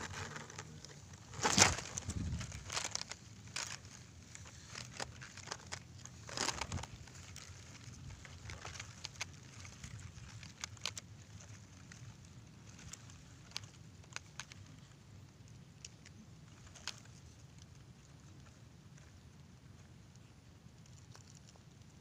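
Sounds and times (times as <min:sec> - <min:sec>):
grass rustling against microphone: 0:00.0 - 0:14.9.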